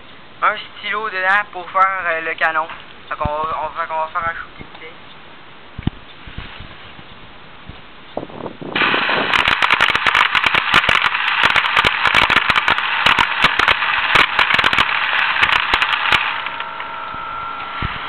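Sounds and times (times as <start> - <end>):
compressed air rushing: 8.2 - 18.0
airsoft pellets clattering: 8.8 - 16.9.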